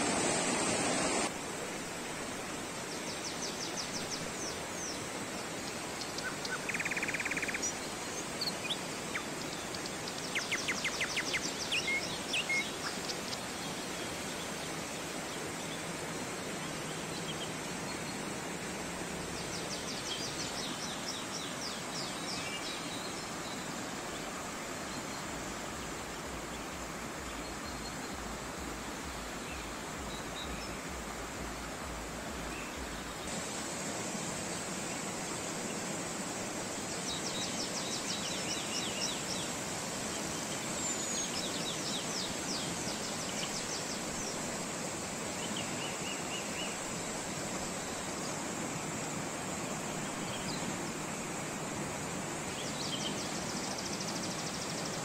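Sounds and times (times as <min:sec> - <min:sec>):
stream rushing over rocks: 0:00.0 - 0:55.0
small birds singing trills: 0:02.9 - 0:33.3.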